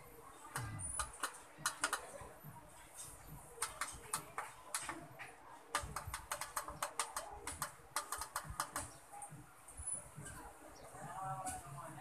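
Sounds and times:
television push buttons clicking: 0:00.6 - 0:02.1, 0:05.8 - 0:09.0.

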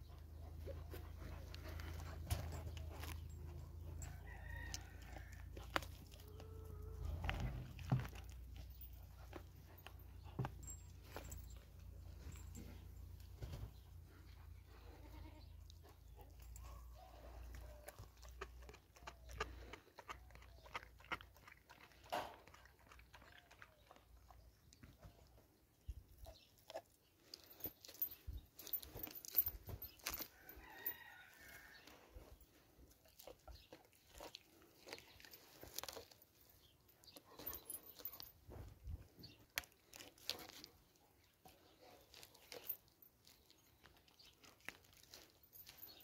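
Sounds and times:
dog chewing meat and bone: 0:17.5 - 0:24.4, 0:32.9 - 0:38.2, 0:39.4 - 0:45.8.

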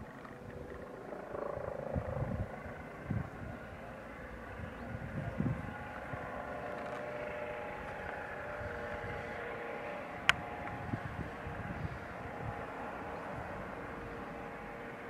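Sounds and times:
distant helicopter: 0:00.0 - 0:15.0.

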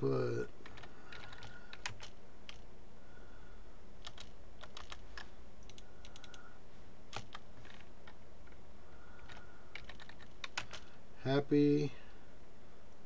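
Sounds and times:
steady background noise: 0:00.0 - 0:13.0
computer keyboard keys clicking: 0:00.6 - 0:02.6, 0:04.0 - 0:06.4, 0:07.1 - 0:08.2, 0:09.2 - 0:10.8.

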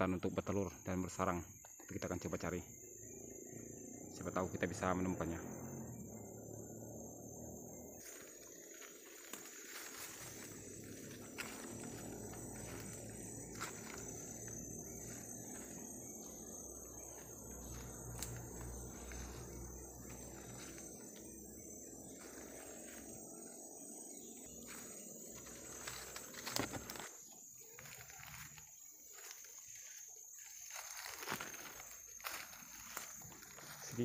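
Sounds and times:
insects droning: 0:00.0 - 0:34.0
footsteps in dry leaves: 0:08.0 - 0:23.3, 0:24.2 - 0:34.0
twigs snapping: 0:08.1 - 0:15.7, 0:17.1 - 0:21.2, 0:25.4 - 0:30.0, 0:30.6 - 0:33.8.

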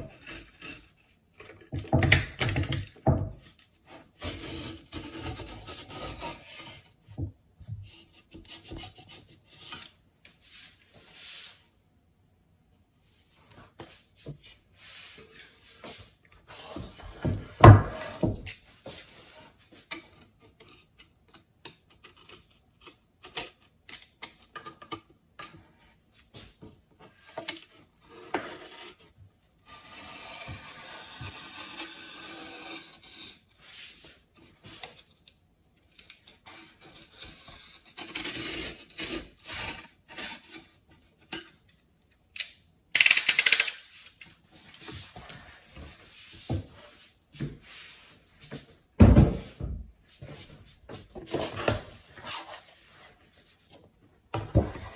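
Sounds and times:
knife blade scraping paper: 0:29.6 - 0:34.1.

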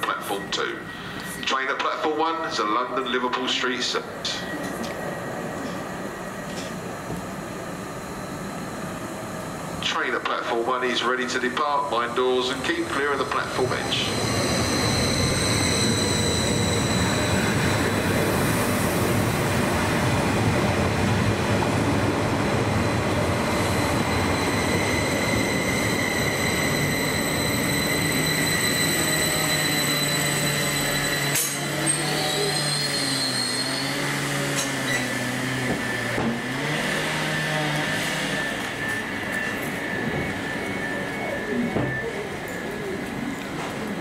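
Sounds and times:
train rolling noise: 0:00.0 - 0:44.0
train motor whine: 0:12.5 - 0:19.6, 0:23.0 - 0:43.9.

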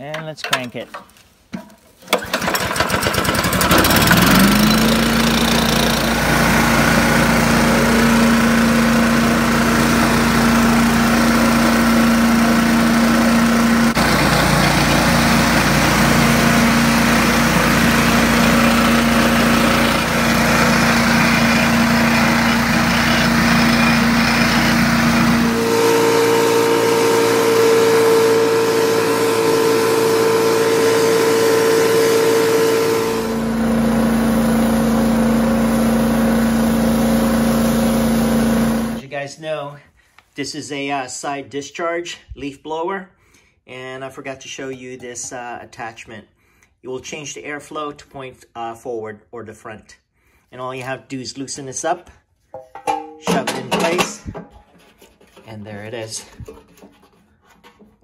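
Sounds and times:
leaf blower engine running: 0:02.1 - 0:39.0
fan rushing: 0:02.2 - 0:39.0.

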